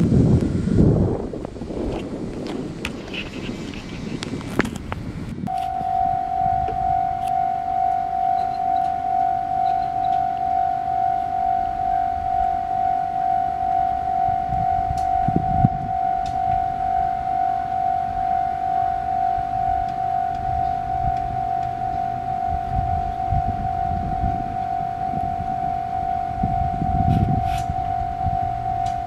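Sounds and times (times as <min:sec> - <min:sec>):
level crossing warning bell: 0:05.5 - 0:29.0.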